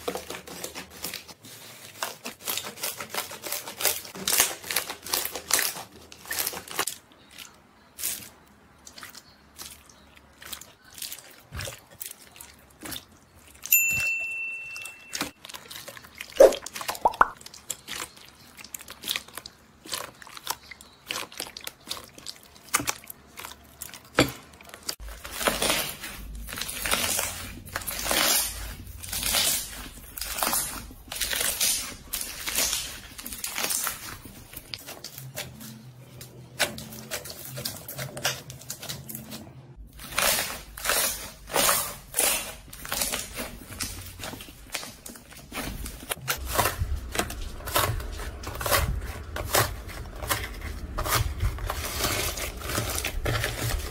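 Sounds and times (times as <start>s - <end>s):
slime squishing and crackling: 0.0s - 13.7s, 15.1s - 53.9s.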